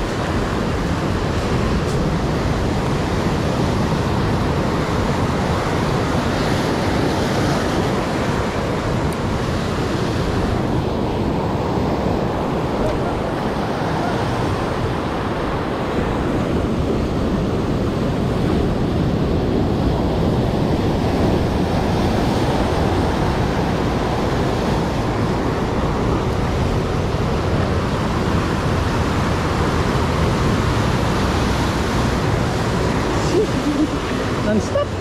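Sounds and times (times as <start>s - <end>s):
wind buffeting microphone: 0.0s - 35.0s.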